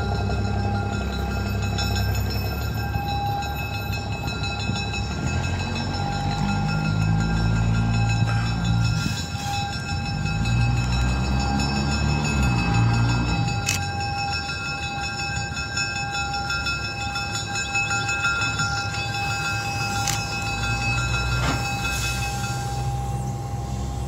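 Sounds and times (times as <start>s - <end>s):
diesel locomotive engine running: 0.0s - 24.0s
high-pitched whine: 19.0s - 24.0s.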